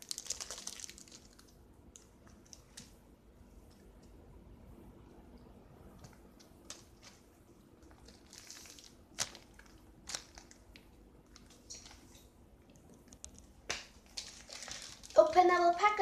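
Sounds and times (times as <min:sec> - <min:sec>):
plastic packaging crinkling: 0:00.0 - 0:02.9, 0:06.6 - 0:16.0.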